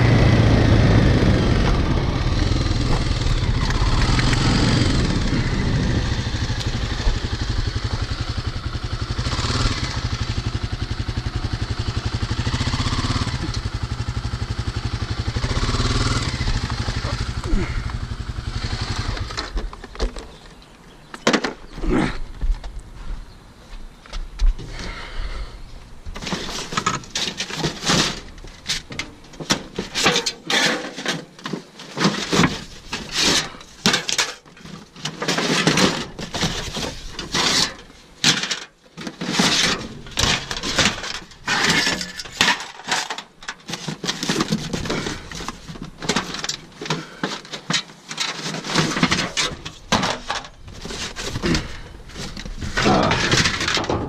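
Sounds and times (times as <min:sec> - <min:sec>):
scrap metal clattering: 0:26.2 - 0:54.0
cardboard scraping: 0:39.1 - 0:54.0.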